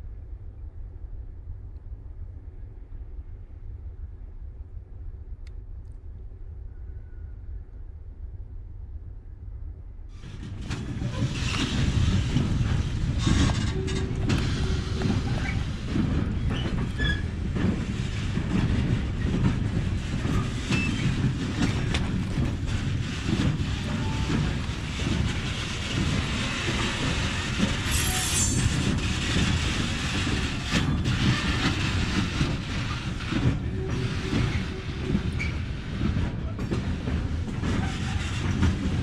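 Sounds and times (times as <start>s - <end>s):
freight train rumble: 0.0s - 39.0s
wheels clattering over rail joints: 10.2s - 39.0s
metallic wheel squeal: 27.9s - 28.8s.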